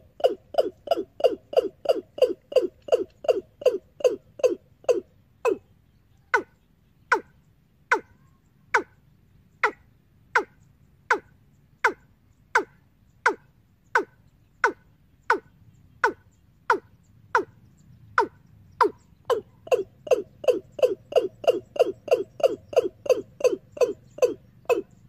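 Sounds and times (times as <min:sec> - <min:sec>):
recorded bird call over amplifier: 0:00.0 - 0:25.0.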